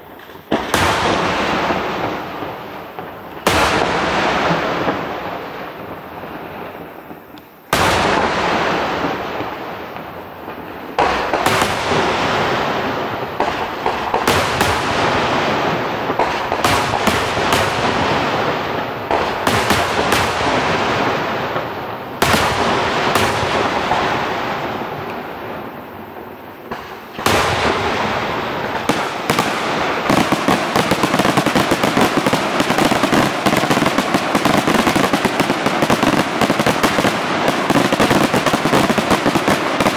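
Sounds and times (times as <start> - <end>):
crackling firework reports: 0.0 - 39.9
firework shells bursting: 26.6 - 39.9.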